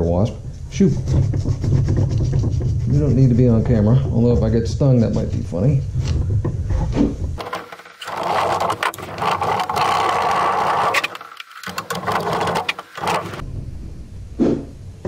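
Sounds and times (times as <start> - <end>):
cloth scrubbing against metal: 7.4 - 13.4.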